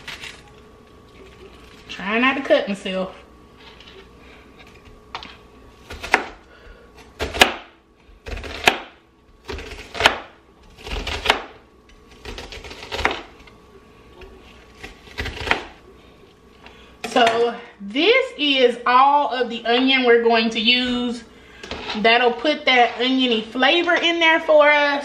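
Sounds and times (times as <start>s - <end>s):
knife chopping on cutting board: 5.9s - 6.4s, 7.1s - 11.6s, 12.2s - 13.4s, 14.8s - 15.8s.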